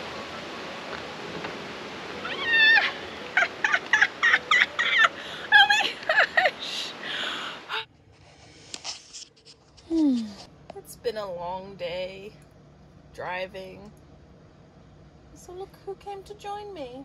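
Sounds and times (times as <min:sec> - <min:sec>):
woman whooping and squealing: 0:02.1 - 0:07.0.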